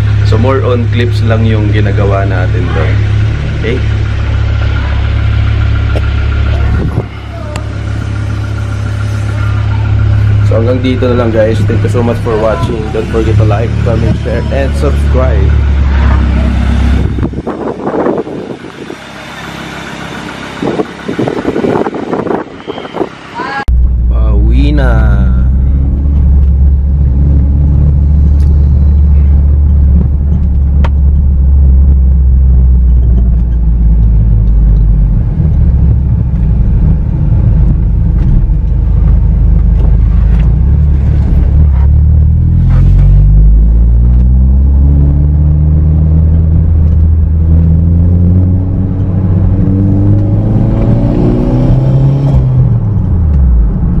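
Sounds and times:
car engine accelerating: 0.0 - 54.0.

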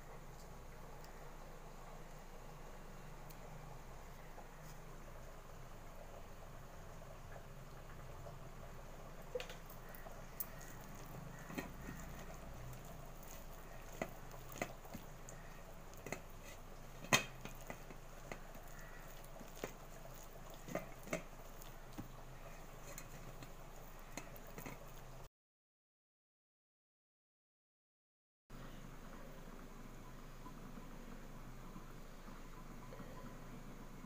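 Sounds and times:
wet paste squelching: 9.6 - 25.2.

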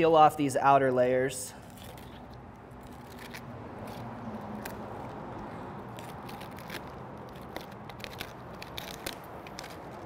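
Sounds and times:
cabbage leaves crackling and snapping: 1.7 - 5.2, 5.8 - 10.0.

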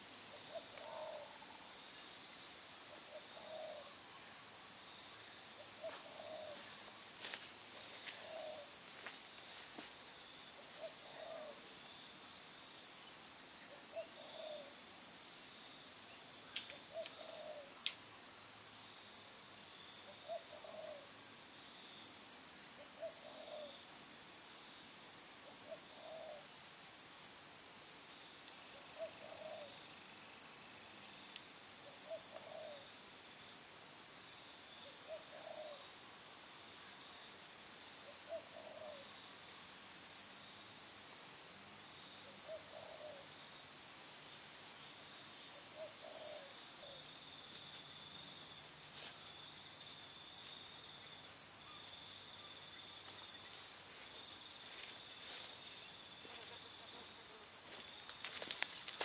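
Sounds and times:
high-pitched insect chorus: 0.0 - 59.0
dove cooing: 0.5 - 1.4, 3.4 - 3.9, 5.8 - 6.7, 8.2 - 8.6, 10.8 - 11.6, 13.9 - 14.7, 16.9 - 17.7, 20.3 - 21.0, 23.0 - 23.7, 25.6 - 26.4, 29.0 - 29.7, 32.1 - 32.8, 35.1 - 35.8, 38.3 - 39.0, 42.5 - 43.2, 45.8 - 47.0.

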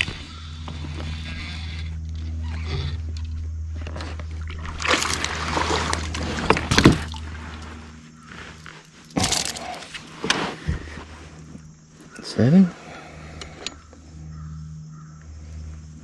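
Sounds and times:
steady low hum: 0.0 - 16.0
fish splashing at surface: 4.6 - 7.3.

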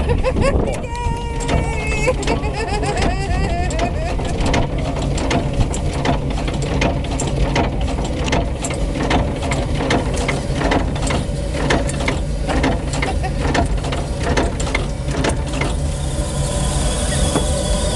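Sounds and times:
boat engine running: 0.0 - 17.9
mechanical clicks and knocks: 1.4 - 1.6, 2.2 - 15.8.

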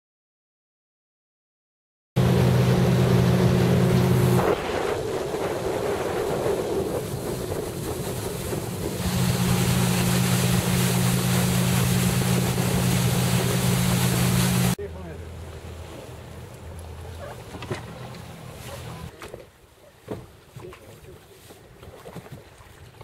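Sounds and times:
wind on microphone: 2.2 - 14.8
motorboat engine running: 2.2 - 19.1
water rushing along hull: 2.2 - 23.0.

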